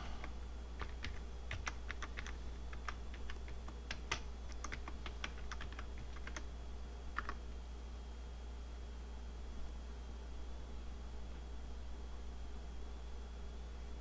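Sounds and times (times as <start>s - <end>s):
computer keyboard keys clicking: 0.2s - 6.5s, 7.1s - 7.4s.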